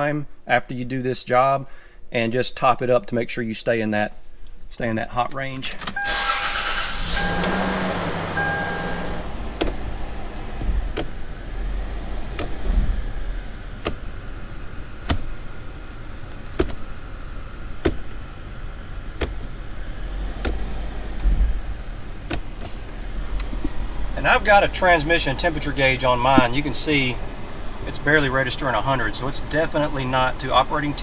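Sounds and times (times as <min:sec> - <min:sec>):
engine idling rumble: 0:06.0 - 0:31.0
gear shifter clicking: 0:09.4 - 0:11.3, 0:12.1 - 0:13.0, 0:13.7 - 0:14.2, 0:15.0 - 0:16.9, 0:17.7 - 0:18.3, 0:19.1 - 0:21.6, 0:22.2 - 0:23.8.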